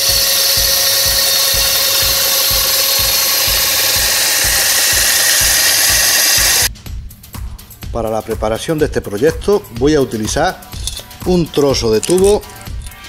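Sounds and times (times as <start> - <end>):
cutting machine motor whine: 0.0 - 6.7.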